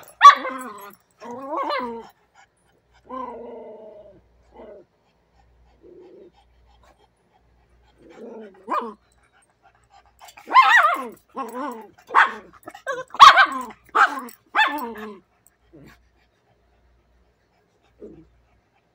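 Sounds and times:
dog barking loudly: 0.0 - 0.8, 10.4 - 11.2, 12.1 - 15.1.

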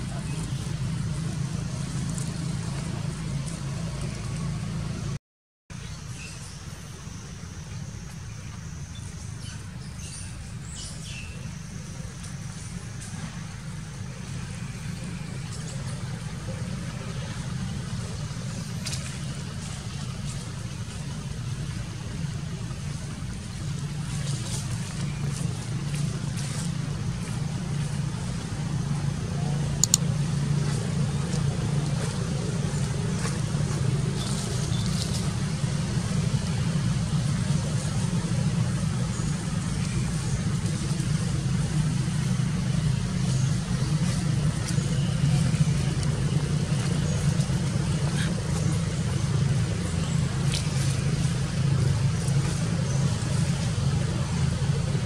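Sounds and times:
steady low hum: 0.0 - 55.0
sharp click: 29.8 - 30.0.

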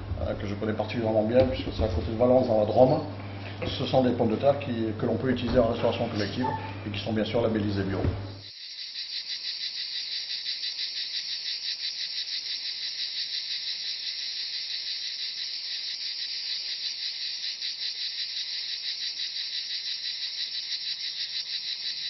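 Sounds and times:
cicadas buzzing: 8.3 - 22.0.

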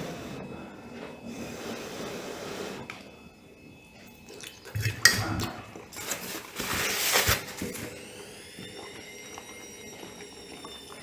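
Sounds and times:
paper napkin rustling: 6.0 - 7.8.

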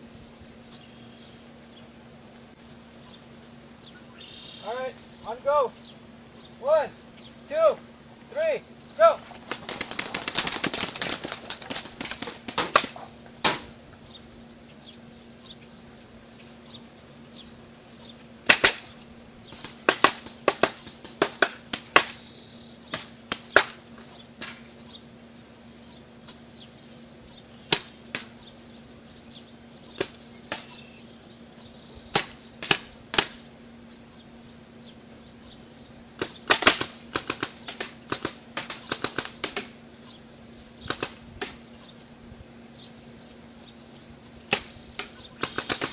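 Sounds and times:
paintball markers firing: 19.6 - 22.2, 36.2 - 39.7, 44.5 - 45.9.

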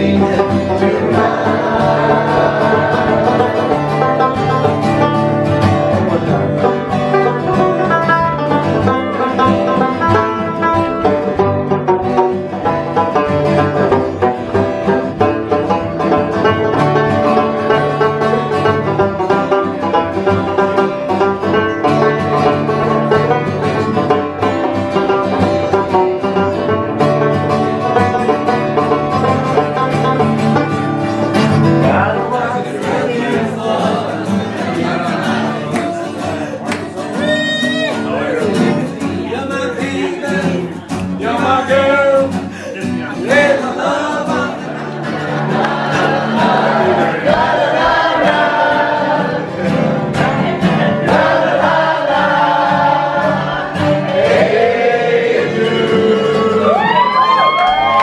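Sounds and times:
group of people singing: 0.0 - 7.9, 31.4 - 37.3, 38.1 - 57.1
acoustic guitar: 0.0 - 58.0
banjo: 0.0 - 58.0.

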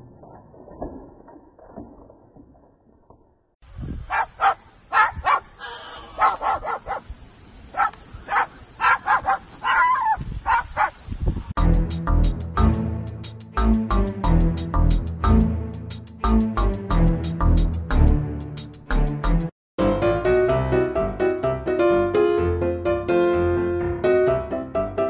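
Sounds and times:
parrot barking like a dog: 4.1 - 7.1, 7.7 - 11.0
music: 11.6 - 25.0.

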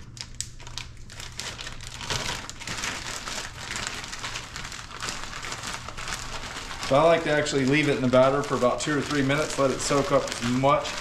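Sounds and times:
low steady hum: 0.0 - 11.0
plastic bag crinkling: 0.0 - 11.0.

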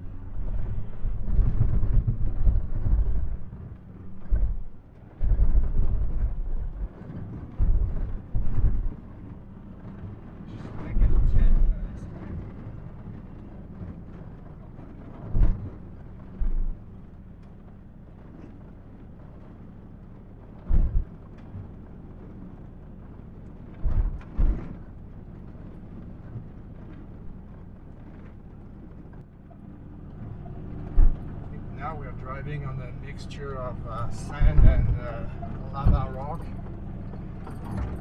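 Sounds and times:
diesel engine running: 0.0 - 7.0, 26.7 - 38.0
heavy thumps: 30.8 - 31.7, 34.0 - 38.0.

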